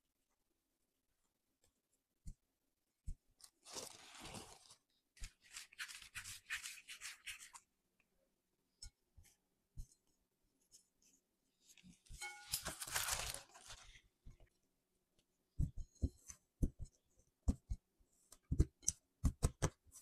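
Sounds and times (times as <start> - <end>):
scratchy rustling of seeds: 3.4 - 7.6, 12.5 - 14.1
soft thumps of dough: 15.5 - 19.9.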